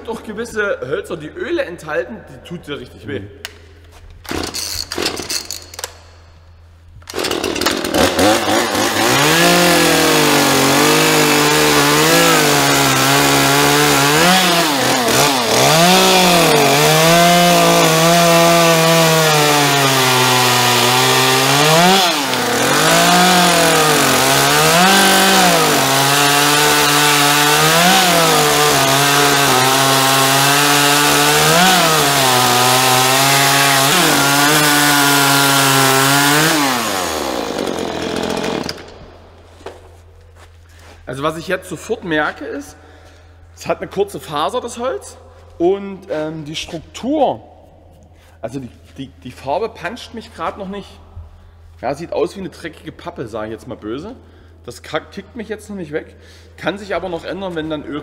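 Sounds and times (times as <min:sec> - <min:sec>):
chainsaw cutting wood: 0:04.2 - 0:06.0, 0:07.0 - 0:39.8.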